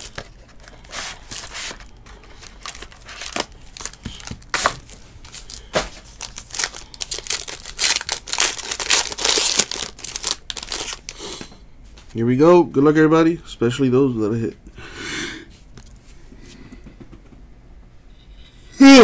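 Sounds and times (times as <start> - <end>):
foil wrapper crinkling and tearing: 0.0 - 11.2.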